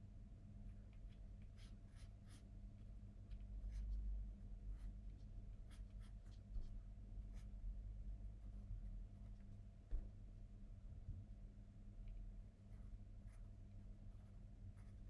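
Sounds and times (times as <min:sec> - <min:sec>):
pencil scratching on paper: 0:00.8 - 0:02.6, 0:03.3 - 0:07.6, 0:12.6 - 0:15.0.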